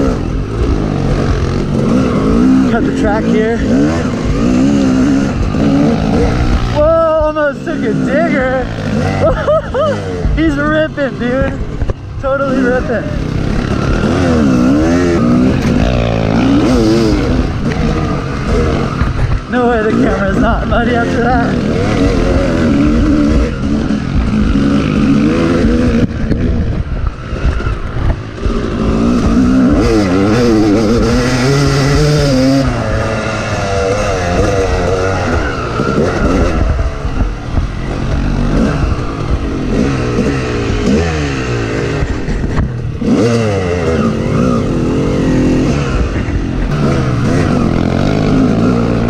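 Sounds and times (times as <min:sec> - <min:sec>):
dirt bike engine revving: 0:00.0 - 0:49.0
wind noise: 0:21.6 - 0:44.7.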